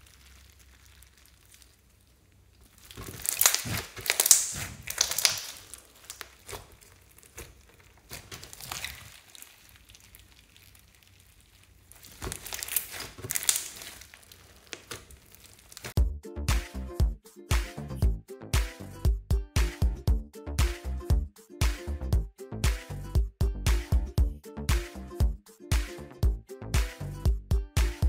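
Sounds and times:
slime with foam beads crackling: 0.0 - 16.0.

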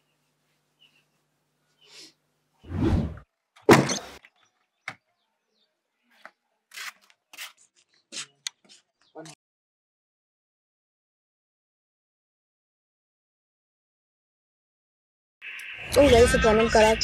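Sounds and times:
door thumping and banging shut: 3.6 - 4.2.

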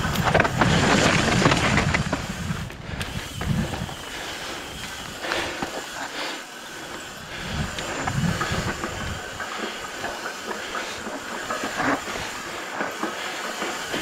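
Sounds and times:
bike rattling knocks: 0.0 - 4.1
bike tyres rumbling on rock: 0.0 - 14.0
steady hiss: 2.3 - 14.0.

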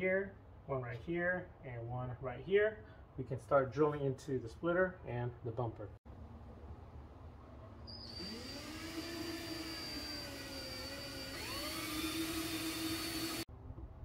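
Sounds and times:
cordless drill drilling: 7.9 - 13.5.

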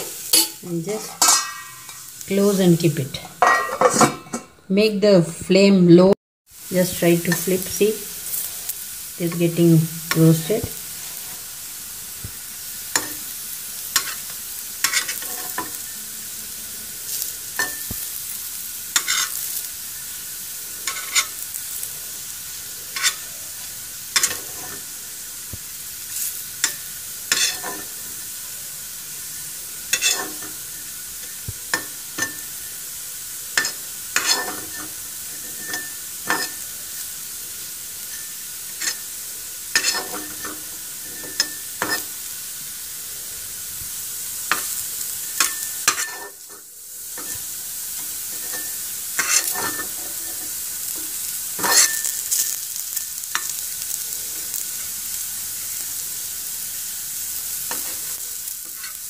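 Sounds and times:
vegetable slices sizzling in oil: 0.0 - 4.1, 6.5 - 59.0
spatula scraping and tapping pan: 0.3 - 2.1, 12.9 - 13.2, 13.9 - 15.8, 19.0 - 19.4, 20.8 - 21.4, 22.9 - 23.3, 24.1 - 24.9, 26.6 - 28.0, 29.9 - 30.6, 31.2 - 32.5, 33.6 - 36.6, 39.7 - 42.1, 45.4 - 46.6, 47.2 - 52.5.

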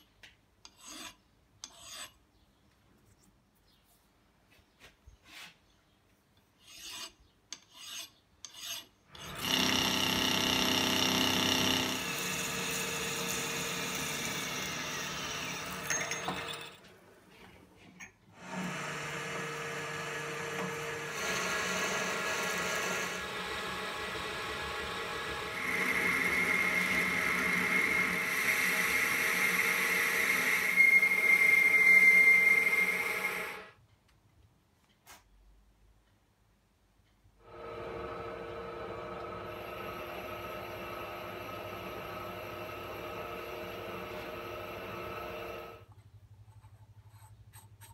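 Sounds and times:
hand file on metal: 0.6 - 2.2, 6.6 - 9.5
drilling whine: 9.2 - 16.8, 18.4 - 33.7, 37.4 - 45.8
metal lathe running: 9.2 - 16.8, 18.4 - 33.7, 37.4 - 45.8.

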